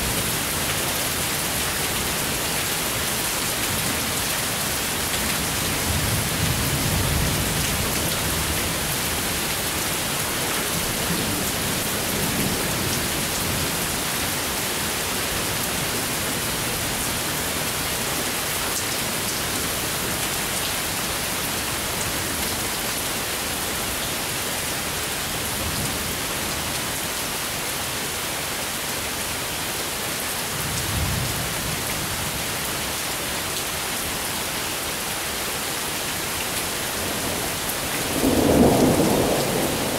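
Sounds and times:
steady rain falling: 0.0 - 39.9
low thunder rumbling: 38.0 - 39.9.

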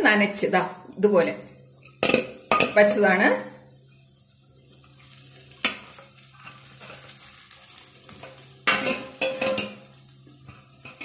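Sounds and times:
rice flakes pattering into pan: 3.8 - 11.0
scraping and rustling in pan: 3.8 - 11.0.

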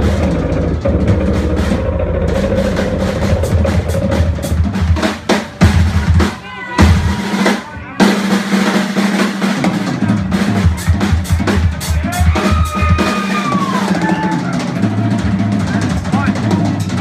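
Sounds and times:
electric bass: 0.0 - 6.2
drum kit beating hard: 0.0 - 17.0.

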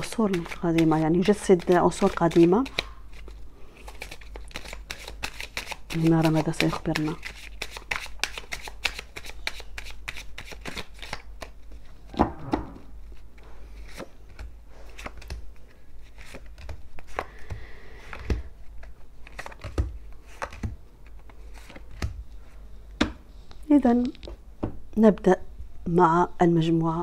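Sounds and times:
cards shuffled with crisp snaps: 0.1 - 11.9, 13.8 - 22.2
cards dealt with light slaps: 0.3 - 11.9, 13.8 - 22.2
loud knock: 12.1 - 12.9.

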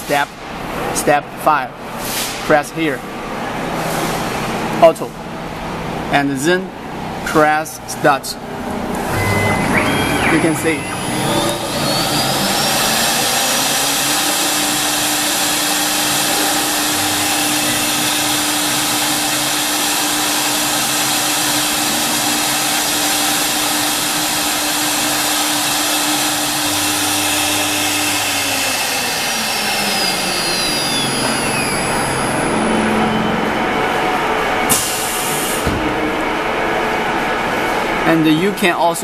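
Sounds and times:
router spindle whine: 8.9 - 34.7.

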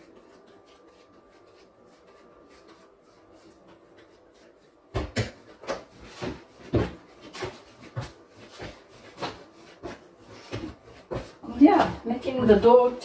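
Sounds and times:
dough kneaded by hand: 0.0 - 13.0.

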